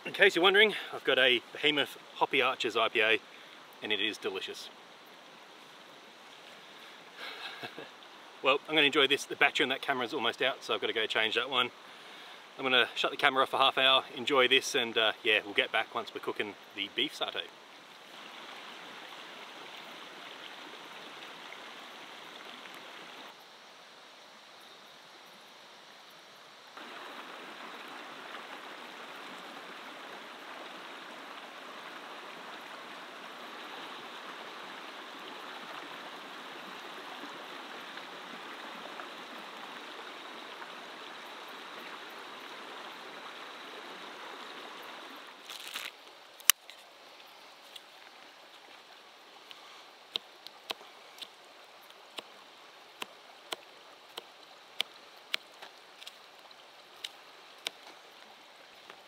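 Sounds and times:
river rushing over rocks: 0:26.8 - 0:46.3.

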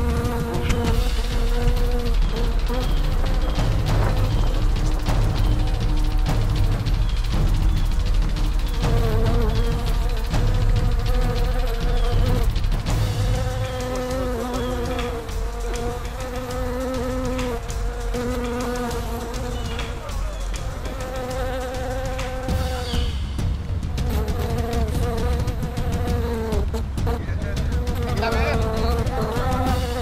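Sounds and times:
bees buzzing: 0:00.0 - 0:30.0
low rumble: 0:00.7 - 0:13.6.

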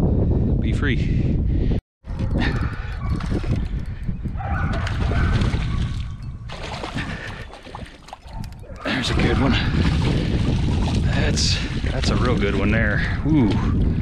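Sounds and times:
wind rumbling on microphone: 0:00.0 - 0:14.0
water splashing from thrashing fish: 0:04.8 - 0:08.4, 0:09.6 - 0:12.8.

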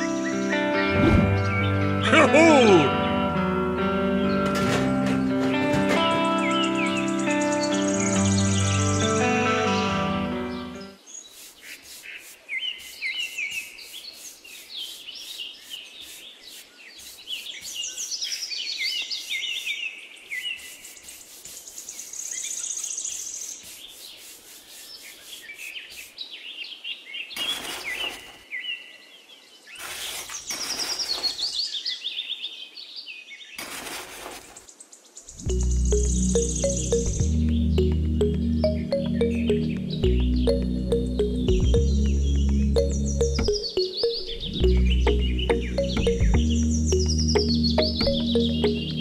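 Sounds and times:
birds chirping: 0:00.0 - 0:33.6, 0:34.2 - 0:49.0
trowel scraping sand on plastic: 0:11.1 - 0:18.4, 0:19.0 - 0:26.2, 0:27.4 - 0:28.4, 0:29.7 - 0:31.6, 0:33.6 - 0:34.7
brush sweeping sand on plastic: 0:11.1 - 0:26.2, 0:27.4 - 0:28.4, 0:29.7 - 0:31.7, 0:33.6 - 0:34.7.

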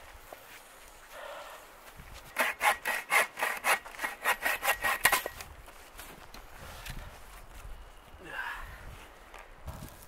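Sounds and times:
bow saw cutting wood: 0:02.3 - 0:05.4.

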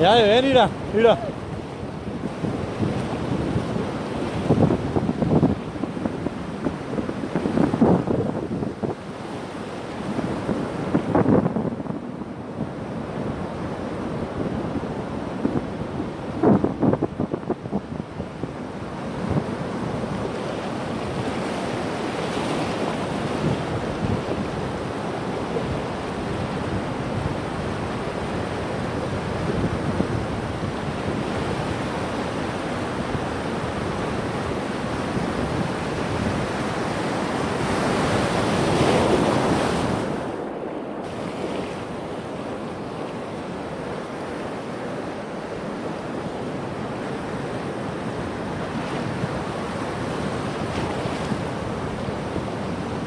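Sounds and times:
ocean surf breaking: 0:00.0 - 0:53.0
wind on microphone: 0:00.0 - 0:53.0.

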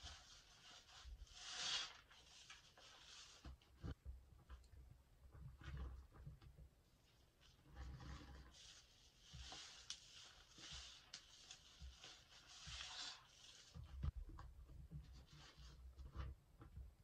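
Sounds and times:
wet sponge squishing: 0:07.1 - 0:14.2
soap foam crackling: 0:07.4 - 0:14.1.

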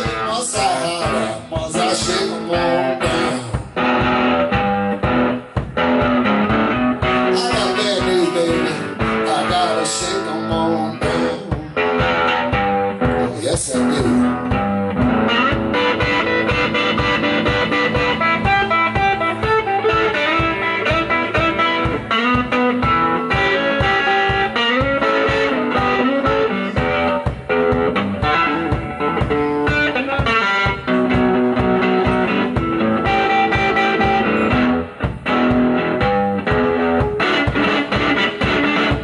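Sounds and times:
bass drum beat: 0:00.0 - 0:39.0
electric guitar playing blues: 0:00.0 - 0:39.0.

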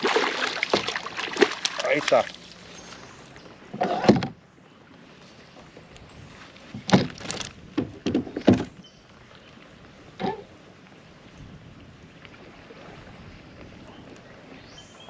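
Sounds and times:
fish splashing: 0:00.0 - 0:03.1
knocks on kayak: 0:06.8 - 0:08.7.

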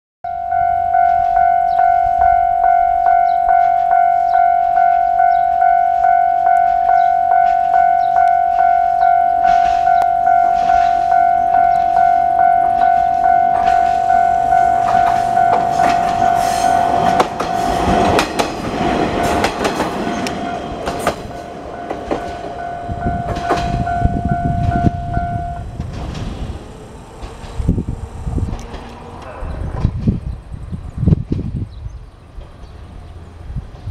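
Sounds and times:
level-crossing warning bell: 0:00.2 - 0:25.8
diesel railcar passing: 0:00.3 - 0:33.9
wheels clacking over rail joints: 0:03.1 - 0:30.2.

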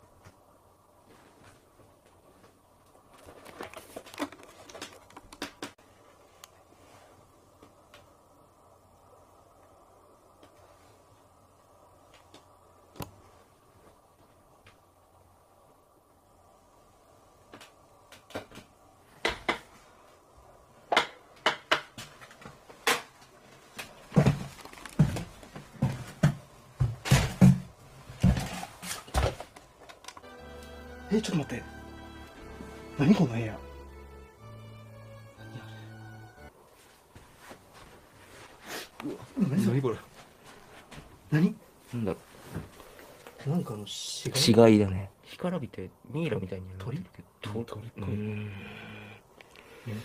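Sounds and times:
faint steady hum: 0:00.0 - 0:50.0
footsteps on wooden floor: 0:24.0 - 0:28.6.

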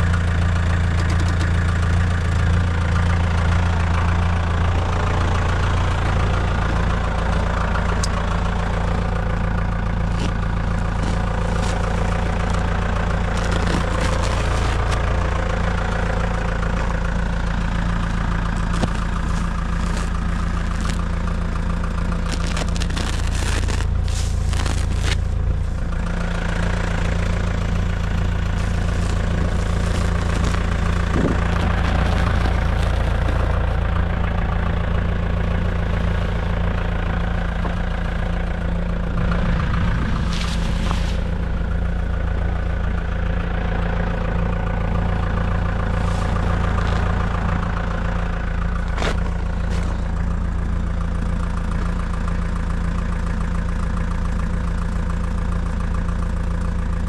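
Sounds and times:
tractor engine running: 0:00.0 - 0:57.0
bale equipment clatters: 0:06.5 - 0:26.4, 0:27.5 - 0:34.8.

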